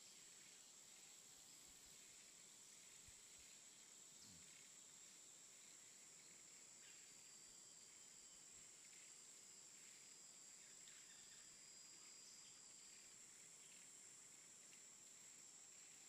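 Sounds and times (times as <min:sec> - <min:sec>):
insect drone: 0:00.0 - 0:16.0.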